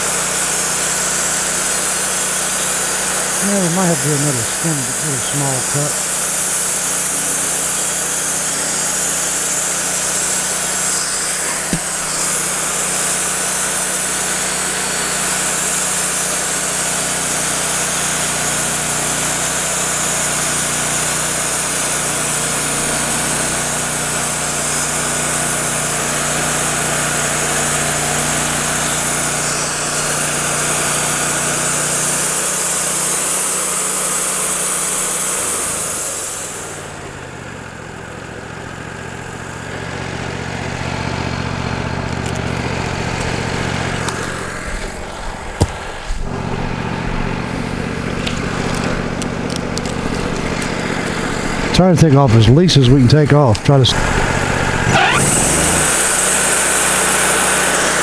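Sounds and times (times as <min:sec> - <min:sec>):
saw blade hiss: 0:00.0 - 0:37.0, 0:54.8 - 0:58.0
sawmill engine running: 0:00.0 - 0:58.0.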